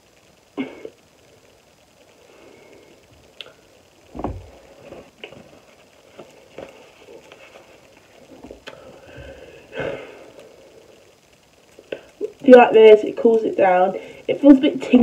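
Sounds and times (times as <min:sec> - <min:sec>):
dull thump: 0:04.1 - 0:04.6.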